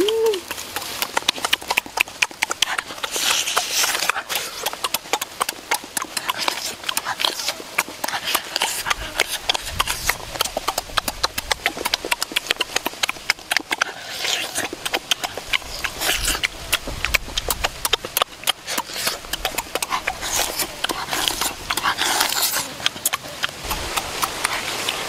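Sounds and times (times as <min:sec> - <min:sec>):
wet chewing and smacking: 0:00.0 - 0:25.0
crunchy rustle: 0:00.5 - 0:04.9.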